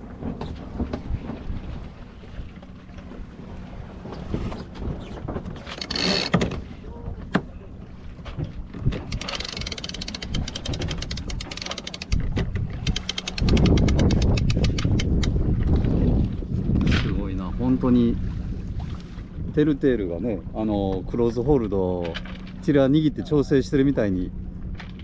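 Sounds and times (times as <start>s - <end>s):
wind rumble on microphone: 0.0s - 25.0s
winch ratchet clicks: 5.7s - 6.4s, 9.0s - 15.3s.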